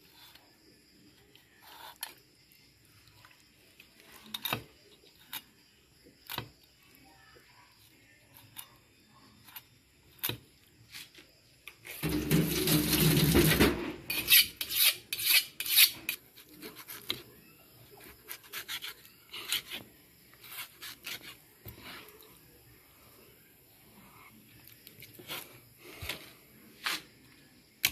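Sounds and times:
knife scraping fish on cutting board: 14.1s - 17.1s.

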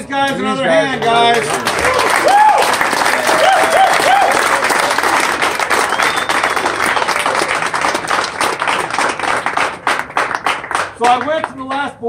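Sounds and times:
crowd clapping and cheering: 0.7s - 12.0s
whoops: 1.8s - 4.7s.

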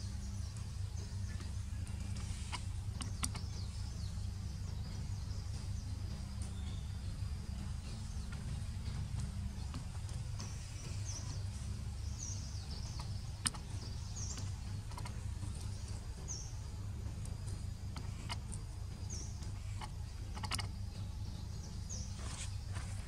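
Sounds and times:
high bird chirps: 0.0s - 23.0s
steady low rumble: 0.0s - 23.0s
sharp click: 2.5s - 3.4s, 13.0s - 13.7s, 19.8s - 20.7s.

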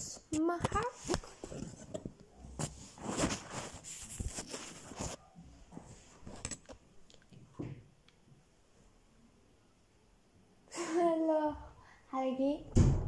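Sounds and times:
rustling of makeup bag: 0.8s - 5.3s.

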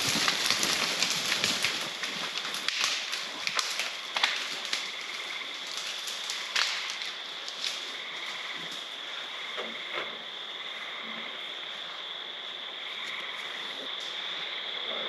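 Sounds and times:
crackles and rustles: 0.0s - 15.0s
steady outdoor hiss: 0.0s - 15.0s
sharp snaps: 2.4s - 5.0s, 5.7s - 7.8s.

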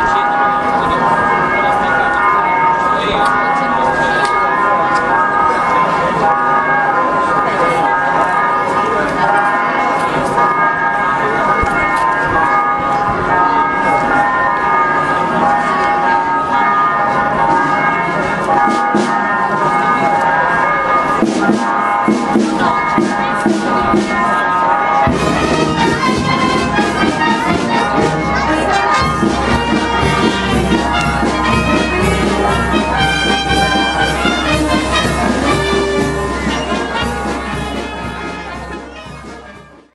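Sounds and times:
brass band playing march: 18.7s - 19.3s, 21.2s - 24.2s, 25.0s - 39.9s.

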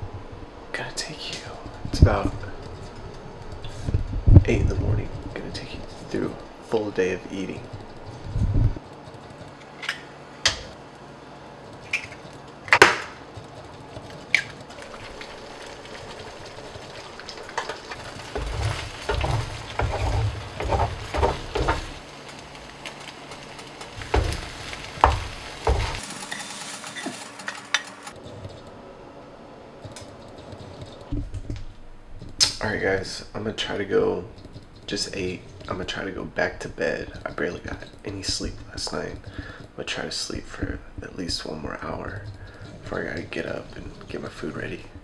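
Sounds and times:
eggs sizzling in pan: 14.6s - 28.2s
spatula scraping and knocking pan: 14.6s - 28.6s.

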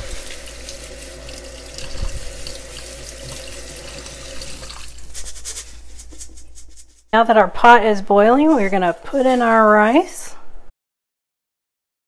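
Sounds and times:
faucet stream splashing in sink: 0.0s - 5.1s.

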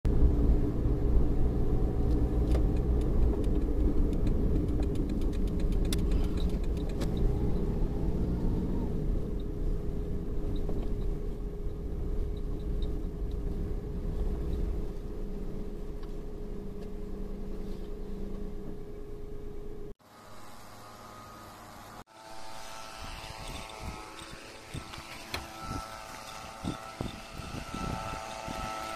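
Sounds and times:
car engine and road rumble: 0.1s - 20.0s
constant hum: 0.1s - 28.9s.

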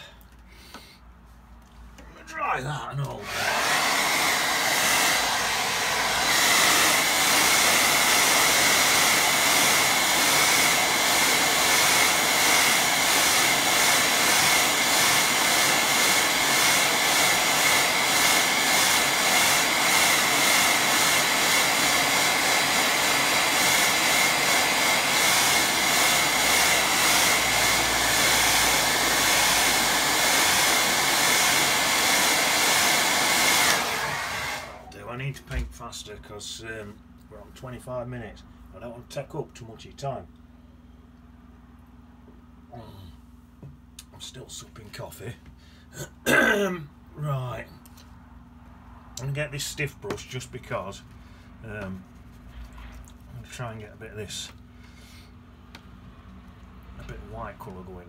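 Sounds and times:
hair dryer blowing: 3.1s - 34.9s.

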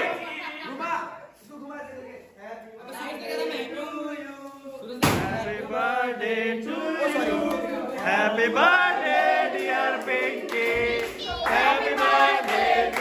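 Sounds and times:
group singing and shouting: 0.0s - 0.7s, 3.4s - 13.0s.

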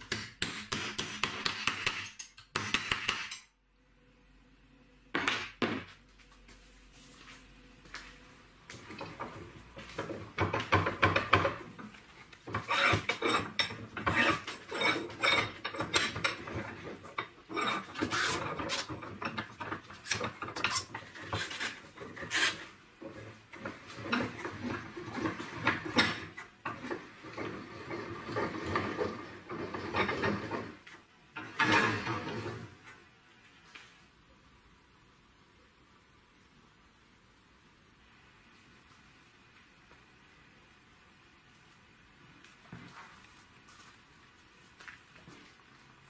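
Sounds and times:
steel bar scraping in screw head: 12.6s - 16.5s, 20.0s - 22.6s.

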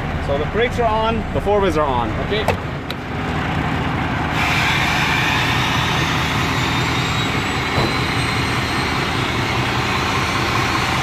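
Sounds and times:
diesel engine idling: 0.0s - 11.0s
loud rushing hiss: 4.3s - 11.0s.

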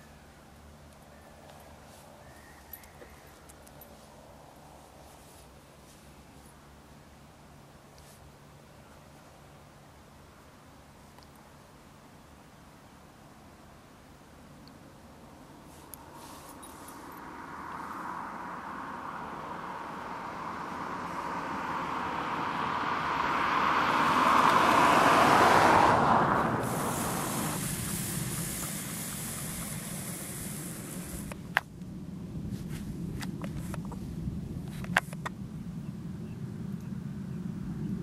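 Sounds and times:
car passing by: 15.6s - 31.4s.

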